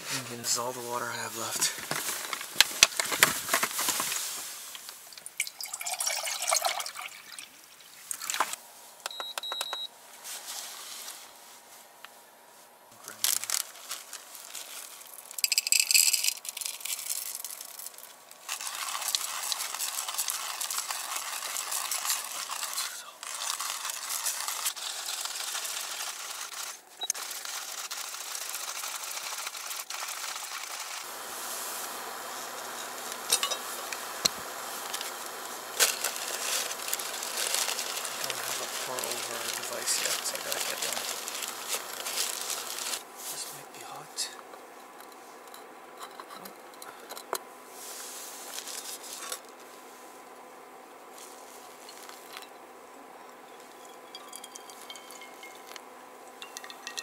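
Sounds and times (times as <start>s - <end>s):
cooktop steady rushing noise: 0.0s - 9.0s, 10.2s - 50.2s, 51.0s - 52.6s, 53.2s - 57.0s
water pouring into a mug: 5.3s - 7.5s
short high beep: 9.1s - 9.9s.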